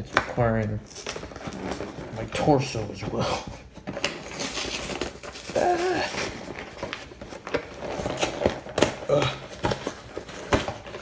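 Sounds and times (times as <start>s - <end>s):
cardboard packaging rustling: 0.0s - 11.0s.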